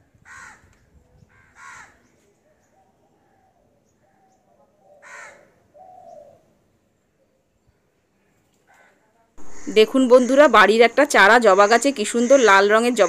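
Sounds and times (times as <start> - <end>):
crow cawing: 0.3 - 0.6, 1.4 - 2.0, 5.0 - 5.6, 8.8 - 10.3.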